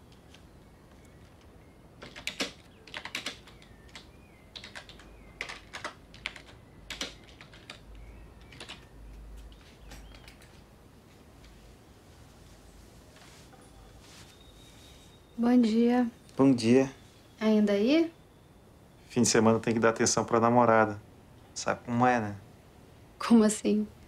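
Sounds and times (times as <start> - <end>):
computer keyboard key clicks: 9.8 - 10.5
faint high chirps: 13.5 - 19.8.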